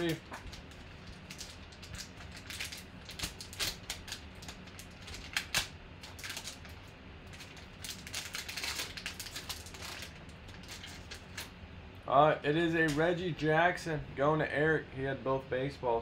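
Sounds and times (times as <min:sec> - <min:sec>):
wrapper crinkling as torn open: 0:00.0 - 0:11.5.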